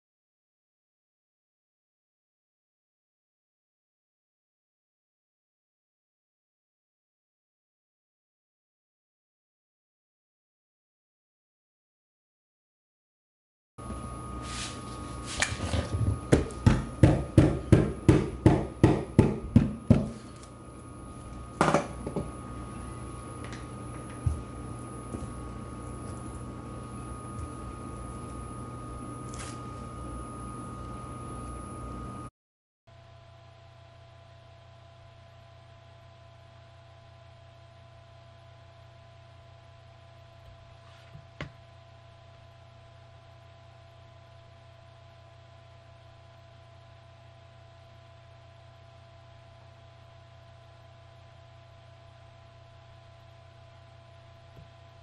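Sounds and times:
faint high whine: 13.8 - 17.0, 20.1 - 32.3
low electrical hum: 13.8 - 32.3, 33.0 - 55.0
pellet pounded on tabletop: 16.2 - 20.2, 21.6 - 22.3.

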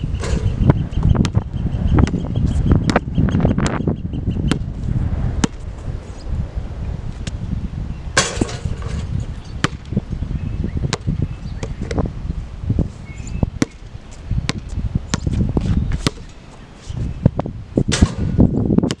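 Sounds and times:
low rumble: 0.0 - 9.4
basketball bouncing on hard court: 1.0 - 1.4, 2.0 - 2.2, 5.4 - 5.6, 9.6 - 9.9, 10.9 - 11.8, 14.5 - 16.3.

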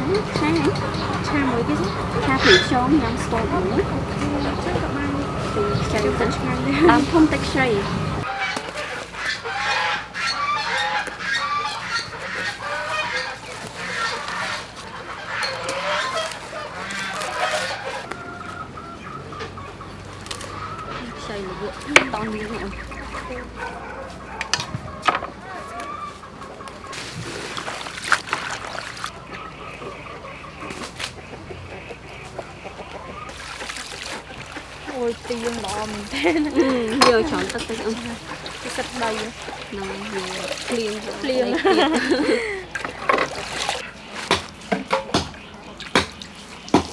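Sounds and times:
chickens clucking: 0.0 - 46.9
leafy greens rustling: 1.3 - 18.6, 19.6 - 24.4, 25.4 - 31.3, 33.2 - 46.9
stems snapping: 20.0 - 21.2.

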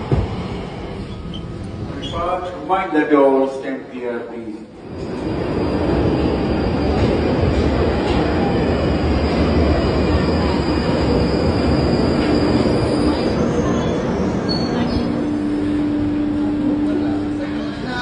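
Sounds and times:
train wheels rushing in tunnel: 0.0 - 18.0.

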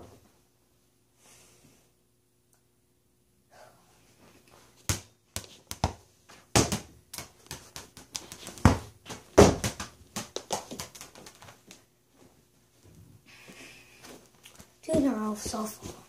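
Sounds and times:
ball bouncing on hardwood floor: 4.8 - 11.5.

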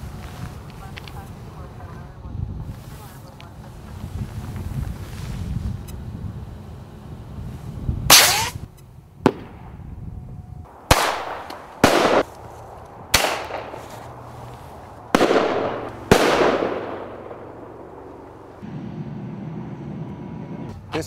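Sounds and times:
pyrotechnic shell bangs: 8.1 - 8.6, 10.9 - 12.3, 13.1 - 13.8, 15.2 - 18.2.

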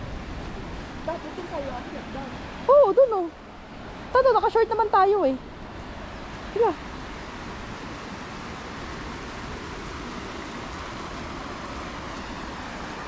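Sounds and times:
stream flowing over stones: 0.0 - 13.0.

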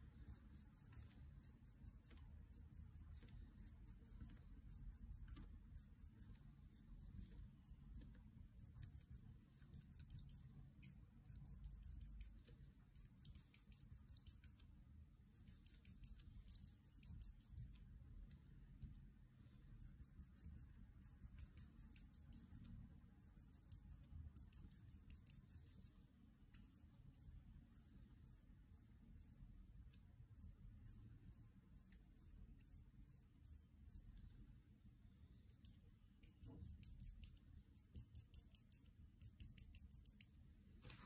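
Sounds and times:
marker scratching on paper: 0.0 - 14.7, 15.4 - 18.0, 18.8 - 26.0, 35.1 - 41.0
low room hum: 0.0 - 41.0.

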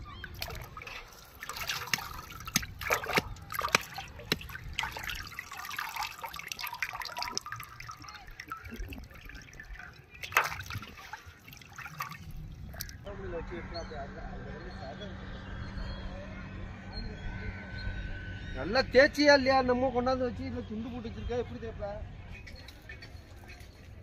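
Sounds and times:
water splashing in metal basin: 0.0 - 13.1
water trickling and dripping: 0.0 - 13.1.

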